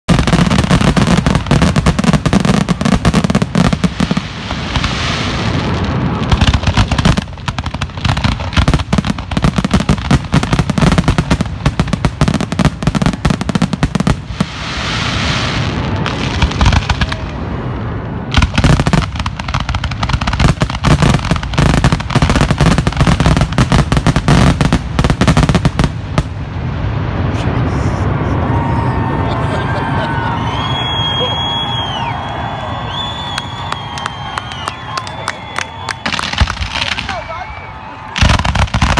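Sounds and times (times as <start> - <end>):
firework hiss: 0.1 - 17.2
fireworks crackling bursts: 0.1 - 28.8, 30.2 - 38.9.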